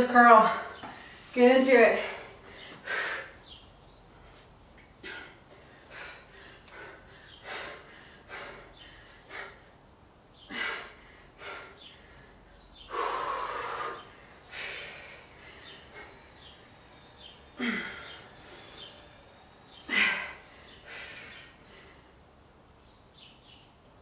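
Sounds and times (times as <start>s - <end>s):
woman breathing hard: 2.0s - 22.2s.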